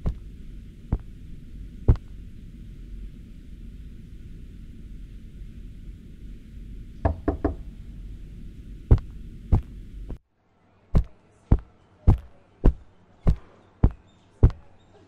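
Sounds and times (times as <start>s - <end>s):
low hum: 0.0s - 10.2s
knocking: 7.0s - 7.7s.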